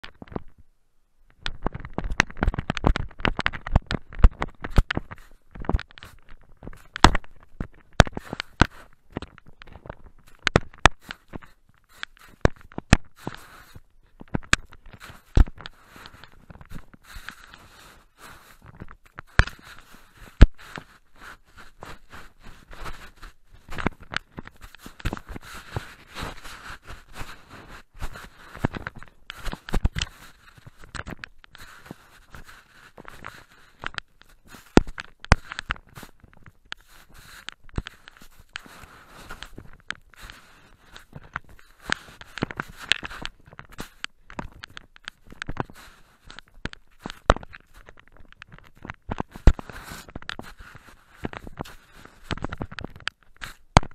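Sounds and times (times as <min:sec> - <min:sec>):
scraping rustling in snow: 0:13.2 - 0:13.8, 0:17.0 - 0:18.7, 0:24.7 - 0:28.7, 0:36.8 - 0:41.0, 0:49.6 - 0:52.3.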